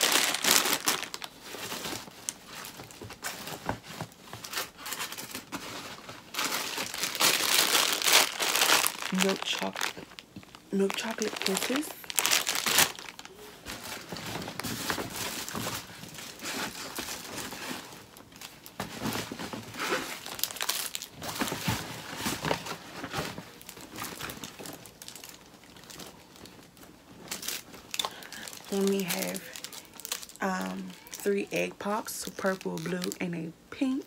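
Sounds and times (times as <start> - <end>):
plastic packaging crinkling: 0.0 - 34.0.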